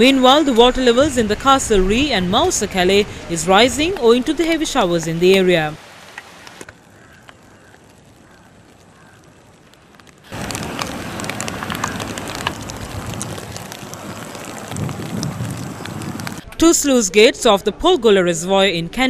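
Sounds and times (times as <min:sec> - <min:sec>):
rain falling on a lake: 0:01.9 - 0:16.4.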